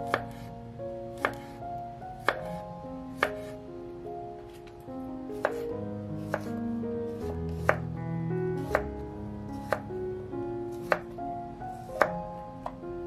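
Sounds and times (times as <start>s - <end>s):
soft background music: 0.0s - 13.0s
knife hitting cutting board: 7.6s - 7.8s.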